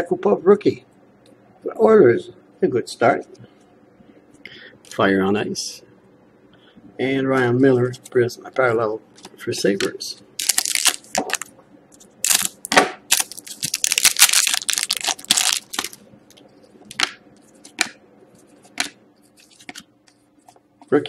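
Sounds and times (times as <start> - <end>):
foil pack crinkling and tearing: 10.4 - 11.5, 12.2 - 16.0.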